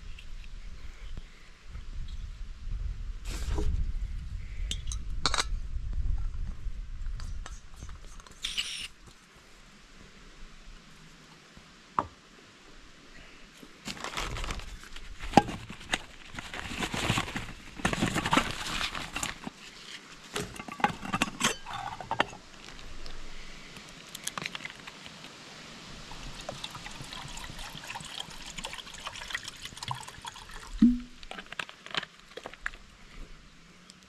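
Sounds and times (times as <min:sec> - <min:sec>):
water pouring: 0:26.1 - 0:31.5.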